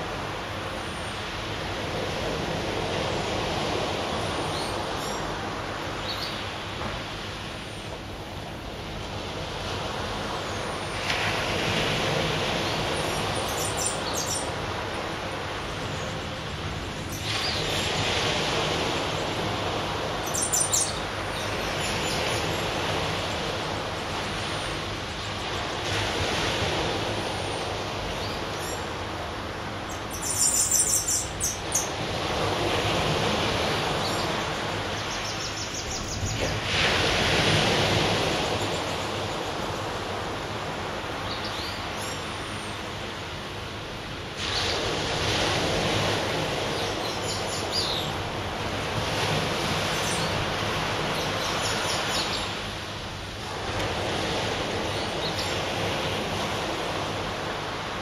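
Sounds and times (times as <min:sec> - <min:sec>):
birds chirping: 0:13.0 - 0:14.5, 0:20.2 - 0:22.5, 0:29.9 - 0:32.0
surf breaking on beach: 0:14.5 - 0:20.2, 0:35.8 - 0:41.2, 0:42.8 - 0:58.0.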